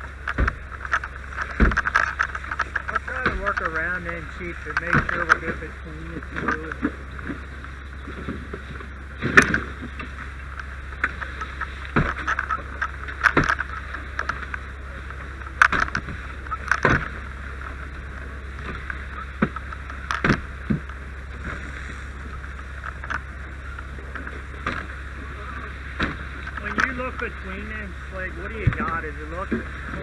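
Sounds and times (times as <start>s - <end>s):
steady hiss and low hum: 0.0s - 30.0s
tool knocking and crunching wood: 0.2s - 3.7s.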